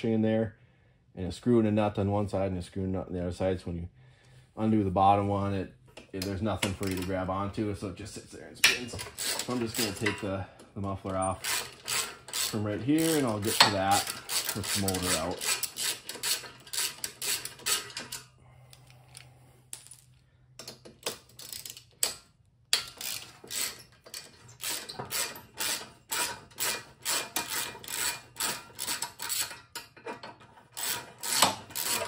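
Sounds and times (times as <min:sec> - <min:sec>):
socket ratchet clicking: 0:11.4 - 0:14.6.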